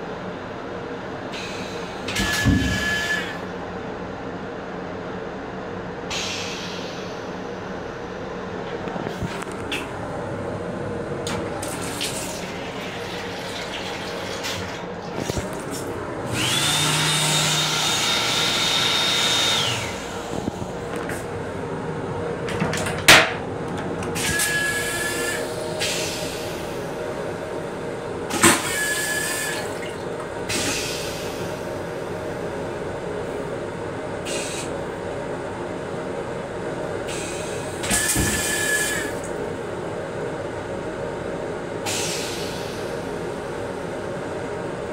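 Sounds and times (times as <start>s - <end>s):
toilet flush whine with rushing air: 0.0s - 3.7s, 6.0s - 44.9s
train running noise: 19.6s - 27.3s.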